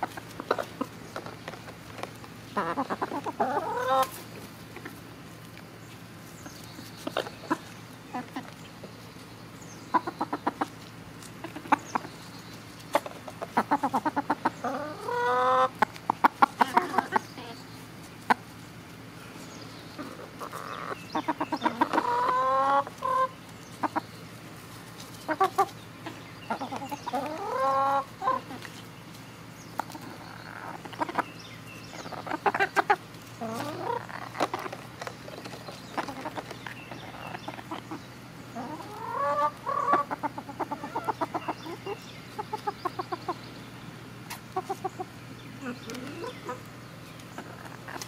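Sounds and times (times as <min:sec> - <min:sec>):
chickens clucking: 0:00.0 - 0:48.0
chicken drawn-out call: 0:12.9 - 0:17.6, 0:25.2 - 0:28.7, 0:38.6 - 0:43.4.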